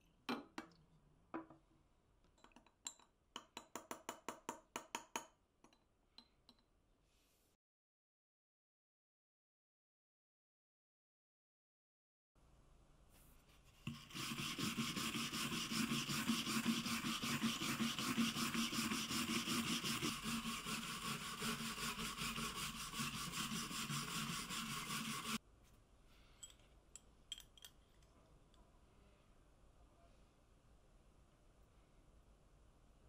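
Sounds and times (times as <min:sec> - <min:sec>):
wire brush scrubbing wood: 0:13.9 - 0:25.4.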